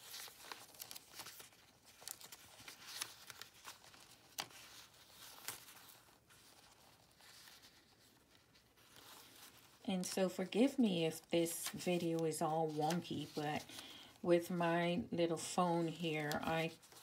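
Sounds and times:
soft clicks of pages turned: 0.0s - 10.2s
paper rustling: 0.0s - 14.6s, 15.5s - 17.0s.

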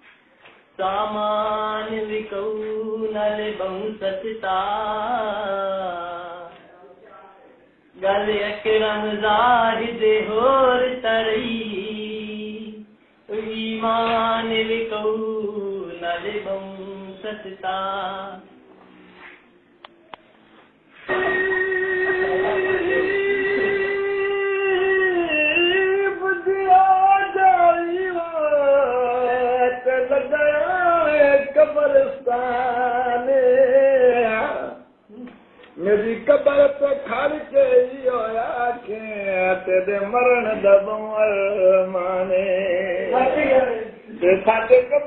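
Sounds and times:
man singing long held notes: 21.0s - 45.0s
person singing long wavering notes: 21.1s - 25.1s.

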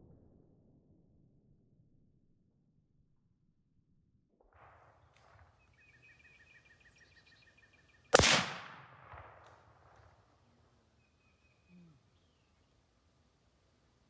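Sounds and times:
rifle shot with rolling echo: 4.5s - 7.3s, 8.1s - 10.5s.

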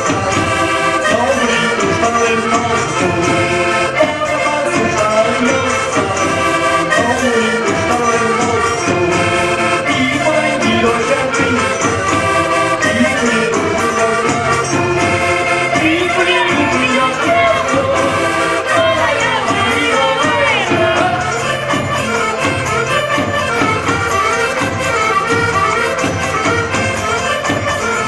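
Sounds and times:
accordion: 0.0s - 28.0s
hand drum beat: 0.0s - 28.0s
strummed guitars: 0.0s - 28.0s
voices singing: 0.0s - 28.0s.

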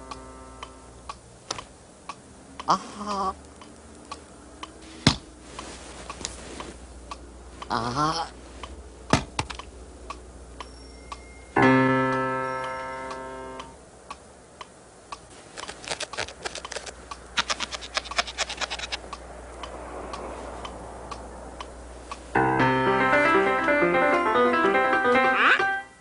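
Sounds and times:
piano chord: 0.0s - 1.0s, 11.6s - 13.8s, 22.4s - 26.0s
quick irregular clicks: 14.1s - 22.3s.

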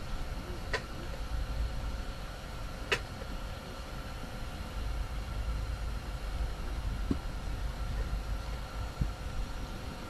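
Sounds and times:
strong wind against a tent: 4.4s - 10.0s.

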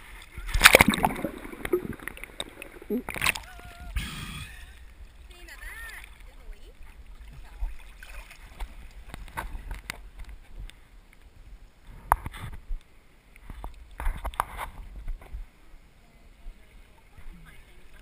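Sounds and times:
seawater splashing: 0.0s - 4.0s.

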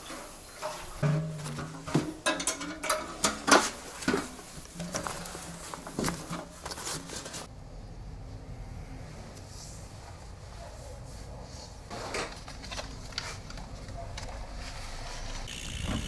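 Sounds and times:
objects clicking and rattling: 0.6s - 7.5s.

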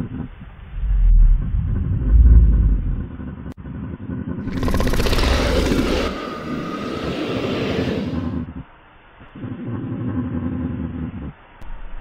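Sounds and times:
deep rumbling dinosaur growl: 0.4s - 3.5s, 4.4s - 8.6s
harsh dinosaur roar: 4.5s - 8.5s.

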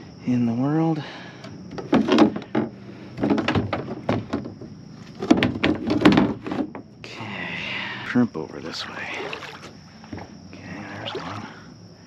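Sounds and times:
paddle knocking on plastic kayak hull: 1.7s - 6.9s.

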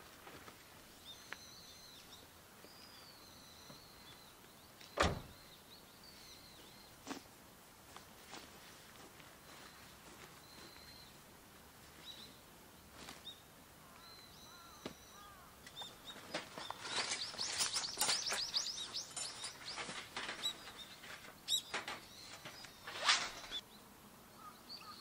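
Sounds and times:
small birds chirping: 0.0s - 7.3s, 9.4s - 25.0s
metal fire pit clinking and rattling: 16.3s - 23.6s.

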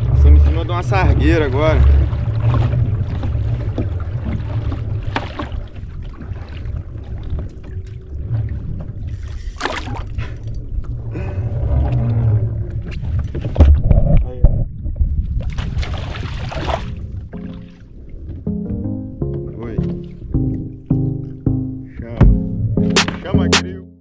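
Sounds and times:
water slapping against hull: 0.0s - 18.4s, 22.3s - 23.7s
wind rumble on microphone: 0.0s - 18.5s
sharp knocks: 22.3s - 23.7s.

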